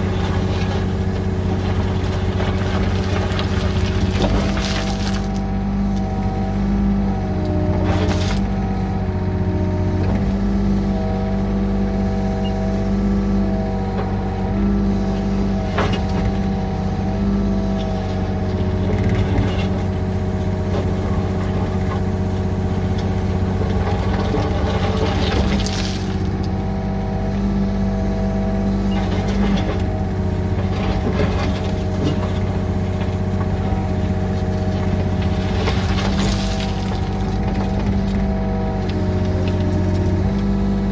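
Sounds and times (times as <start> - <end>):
bucket scraping and clunking gravel: 0.0 - 5.5, 7.7 - 8.7, 17.8 - 26.5, 28.9 - 40.9
excavator diesel engine and hydraulics: 0.0 - 40.9.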